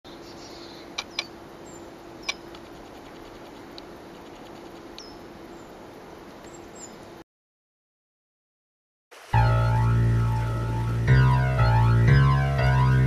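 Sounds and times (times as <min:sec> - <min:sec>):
bird chip calls: 0:00.1 - 0:05.8.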